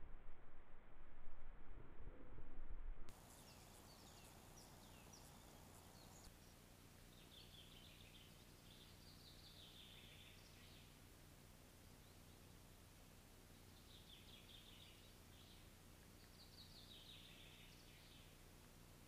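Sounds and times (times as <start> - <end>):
fluctuating low rumble: 0.0 - 3.1
steady low hum: 0.0 - 19.0
songbirds chirping and warbling: 3.1 - 18.9.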